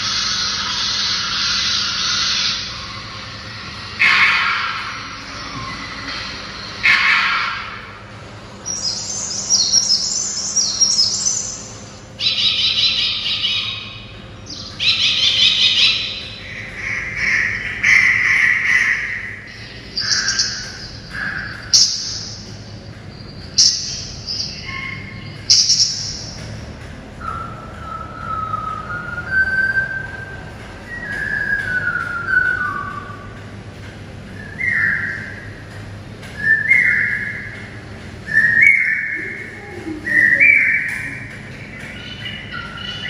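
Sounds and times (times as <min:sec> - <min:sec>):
bird whistling song from speaker: 0:27.2 - 0:33.3, 0:34.4 - 0:35.6, 0:36.4 - 0:43.0.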